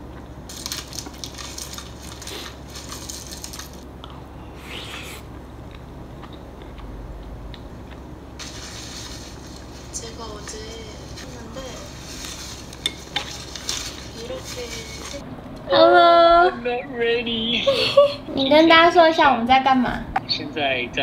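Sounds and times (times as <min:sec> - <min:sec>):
crunching and chewing food: 0:00.0 - 0:10.0
low steady hum: 0:00.0 - 0:21.0.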